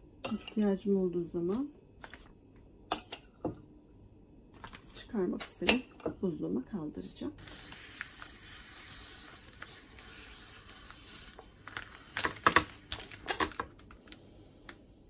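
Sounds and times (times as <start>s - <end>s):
plastic bag crinkling: 11.4s - 14.2s.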